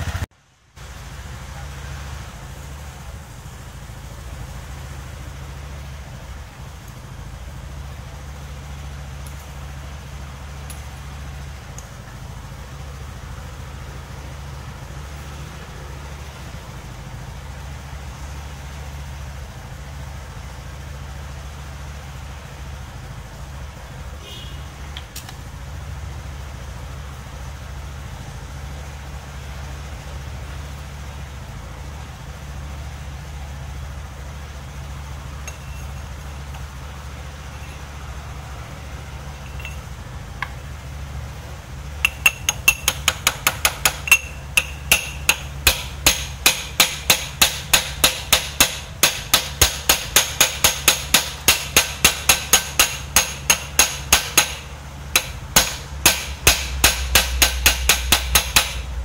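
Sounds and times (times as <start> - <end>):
low hum: 25.2 - 59.0
hammer tapping on steel pipe: 42.0 - 54.6, 55.2 - 58.9.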